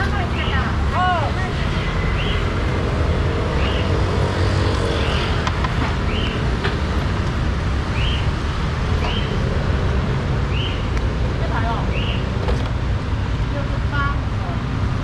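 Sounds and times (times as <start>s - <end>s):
low rumble of street traffic: 0.0s - 15.0s.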